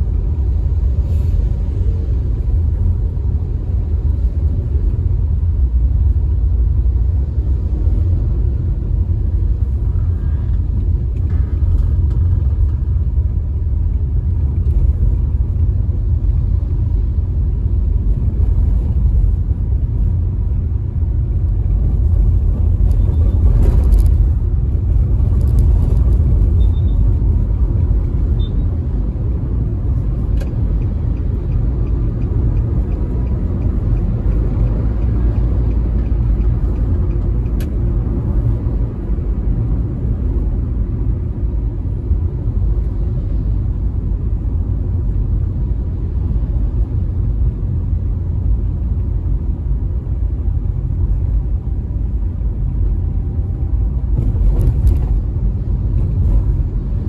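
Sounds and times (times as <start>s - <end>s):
car road rumble and tyre noise: 0.0s - 57.0s.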